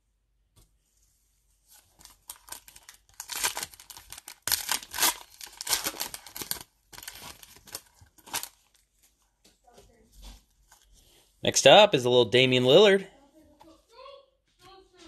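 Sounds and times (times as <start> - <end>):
foil wrapper tearing and crinkling: 1.9 - 8.9.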